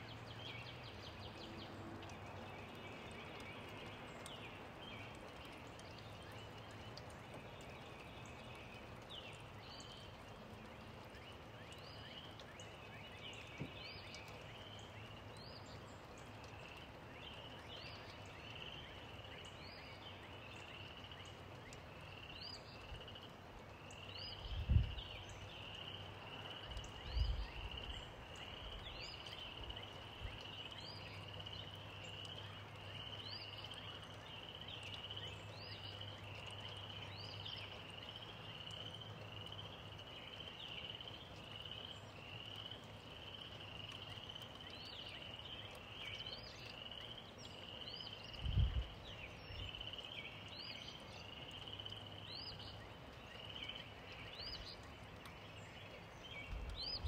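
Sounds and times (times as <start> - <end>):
gentle rain: 0.0 - 57.0.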